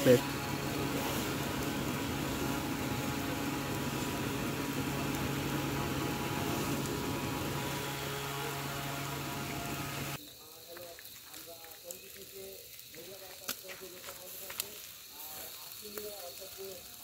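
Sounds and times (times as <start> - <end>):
machine hum and whir: 0.0 - 10.2
constant hiss: 0.0 - 17.0.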